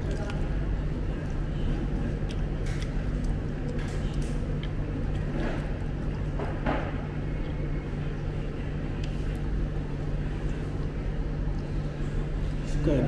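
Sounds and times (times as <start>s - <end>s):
faint voices or clatter: 0.0s - 7.2s.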